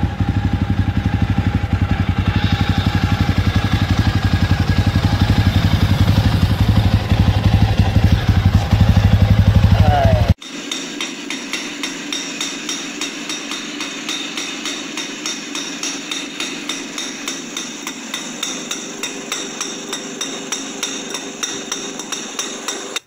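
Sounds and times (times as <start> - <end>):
exhaust popping: 0.0 - 23.0
two-stroke engine idling: 0.0 - 23.0.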